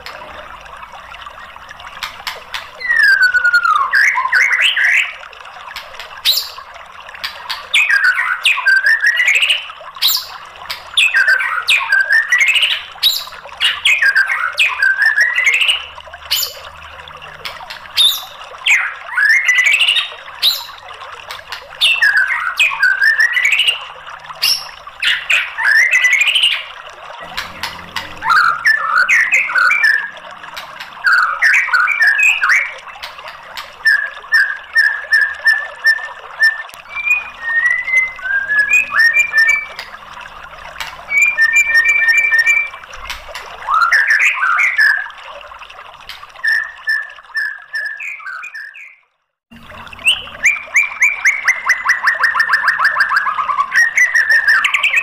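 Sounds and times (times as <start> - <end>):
bird singing whistled phrases: 2.8 - 5.2, 7.7 - 10.4, 11.0 - 16.6, 18.0 - 20.8, 21.8 - 23.8, 28.2 - 30.2, 33.8 - 39.8, 41.1 - 42.8, 43.6 - 45.1, 46.4 - 49.0, 50.0 - 55.0.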